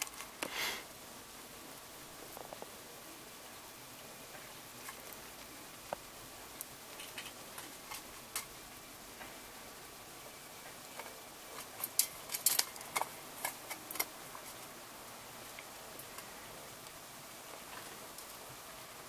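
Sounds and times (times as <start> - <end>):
hamster crunching shell: 6.9 - 8.5, 10.9 - 14.7.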